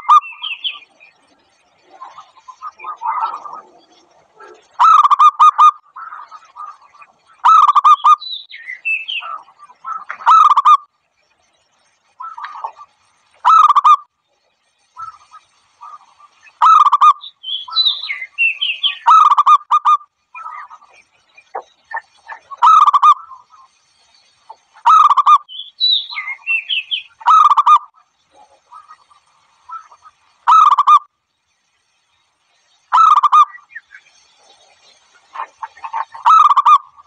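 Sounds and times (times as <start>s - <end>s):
warbling bird chirps: 0.0s - 37.0s
dove cooing: 1.8s - 6.8s.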